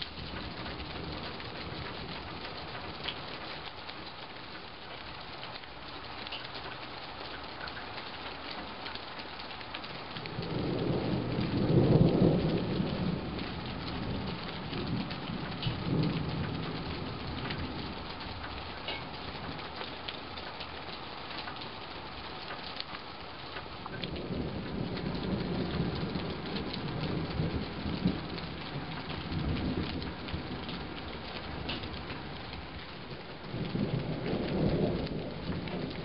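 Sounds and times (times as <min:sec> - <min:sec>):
low rolling thunder: 0:00.0 - 0:03.5, 0:09.8 - 0:20.9, 0:23.6 - 0:36.0
rain falling: 0:00.0 - 0:36.0.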